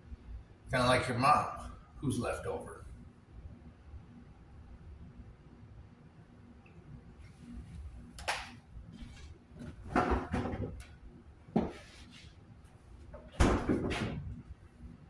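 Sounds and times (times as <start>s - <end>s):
kitchen knocks and clatters: 9.6s - 10.8s, 11.5s - 11.9s, 13.2s - 14.3s.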